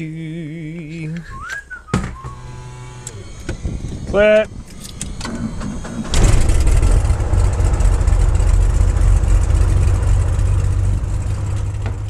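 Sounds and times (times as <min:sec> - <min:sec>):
engine starter cranking: 0:01.4 - 0:09.0
aircraft engine running: 0:02.1 - 0:12.0.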